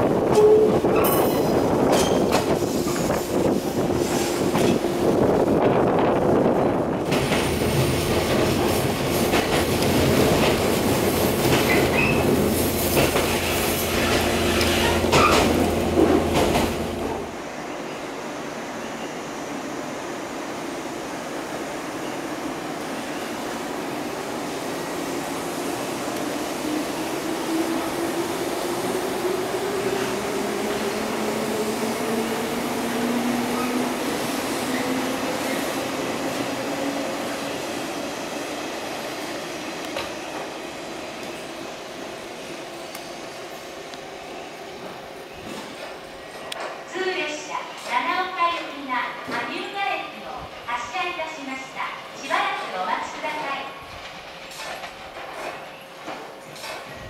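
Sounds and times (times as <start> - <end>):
steady train hum: 0.0 - 57.0
train wheels clattering on rails: 0.2 - 4.9, 7.0 - 17.2, 52.6 - 57.0.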